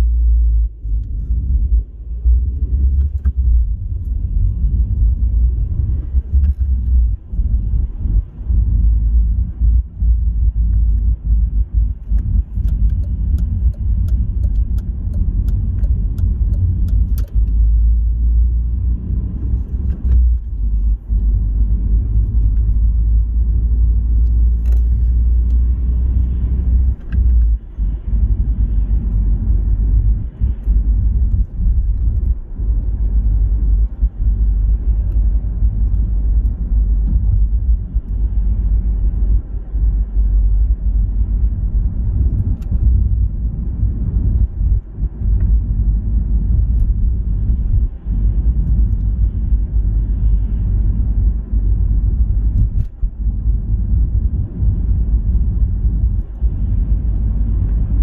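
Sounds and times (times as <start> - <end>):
road and tyre rumble: 0.0 - 58.0.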